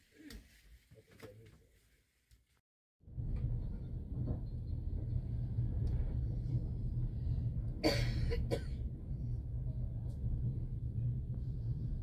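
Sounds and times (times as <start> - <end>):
train rumble inside carriage: 3.1 - 12.0
person coughing: 7.8 - 8.8.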